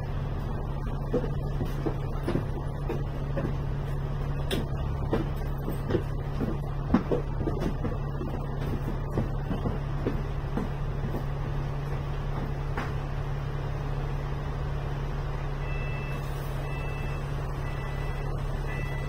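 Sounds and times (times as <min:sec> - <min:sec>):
bus diesel engine idling: 0:00.0 - 0:19.0
electronic two-tone beep: 0:15.6 - 0:19.0.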